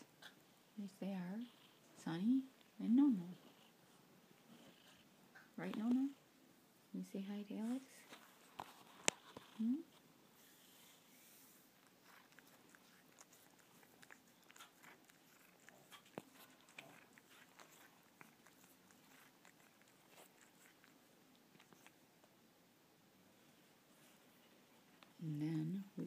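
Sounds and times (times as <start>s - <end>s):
cat licking wet clicks: 12.1s - 22.0s.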